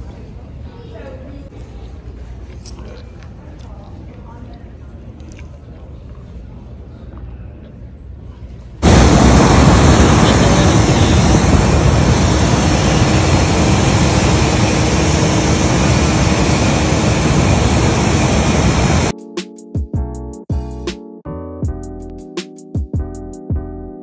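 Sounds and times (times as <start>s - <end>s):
jet engine rush and whine: 8.8s - 19.1s.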